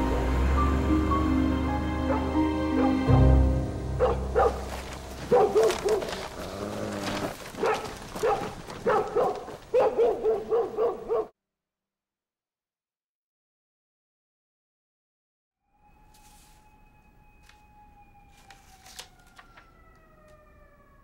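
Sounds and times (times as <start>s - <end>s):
dog barking: 2.1s - 3.0s, 4.0s - 6.2s, 7.6s - 11.3s.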